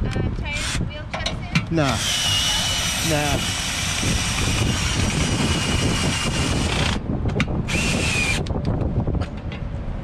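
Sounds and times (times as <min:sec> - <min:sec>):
small electric motor whining: 0:02.0 - 0:07.0, 0:07.7 - 0:08.5.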